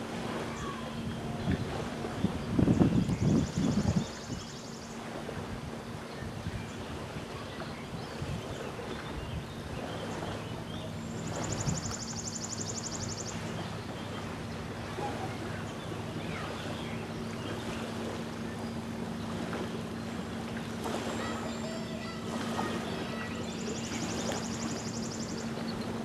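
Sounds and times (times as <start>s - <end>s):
distant boat engine hum: 0.0s - 26.0s
small waves lapping: 0.0s - 26.0s
wind: 0.0s - 26.0s
faint bird chirps: 9.0s - 17.6s, 21.2s - 26.0s.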